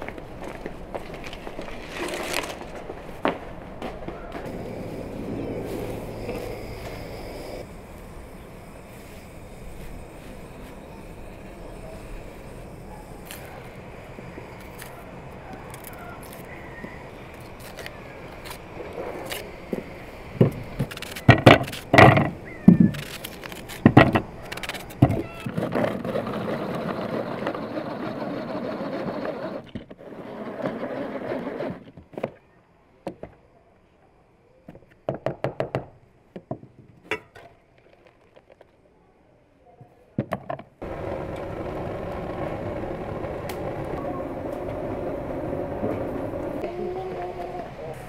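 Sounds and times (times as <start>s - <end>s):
chopper blades spinning: 4.5s - 12.9s, 40.8s - 46.6s
plastic knocks and clunks: 21.3s - 22.9s, 23.8s - 24.3s.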